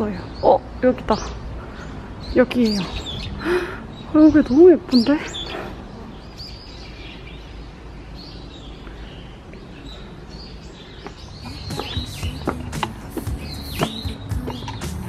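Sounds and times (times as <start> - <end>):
outdoor background hum: 0.0 - 15.0
small birds chirping: 0.0 - 15.0
footsteps on stone steps: 11.0 - 15.0.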